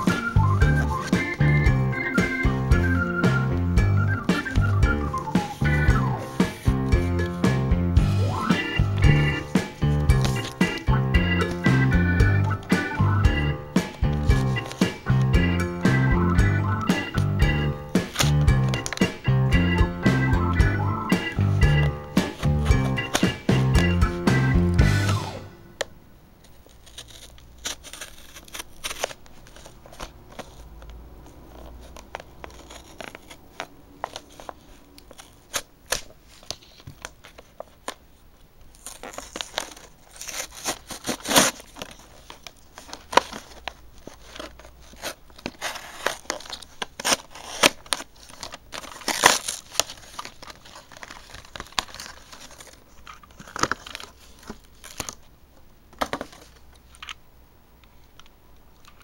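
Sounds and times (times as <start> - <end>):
plastic packaging crinkling and tearing: 17.9 - 19.2, 26.4 - 55.4.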